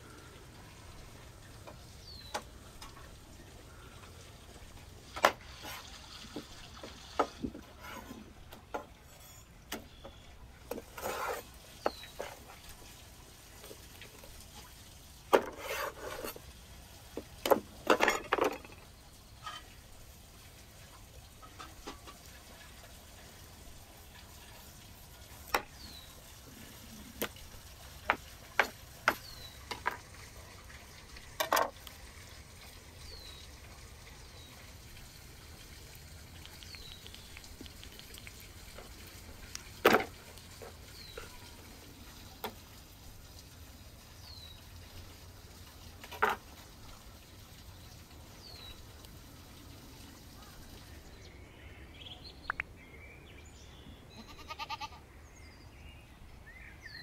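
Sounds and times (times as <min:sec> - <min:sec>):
wet cutting noises: 0:35.8 - 0:41.1.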